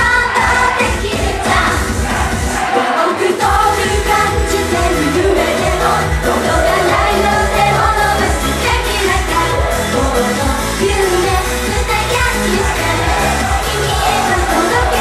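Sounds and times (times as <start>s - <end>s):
pop backing music with beat: 0.0s - 15.0s
woman singing: 2.8s - 15.0s.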